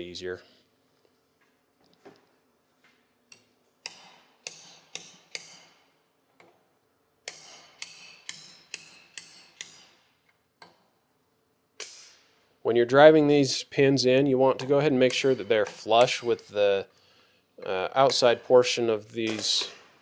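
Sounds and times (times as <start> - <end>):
hammer tapping metal punch: 7.2 - 10.0.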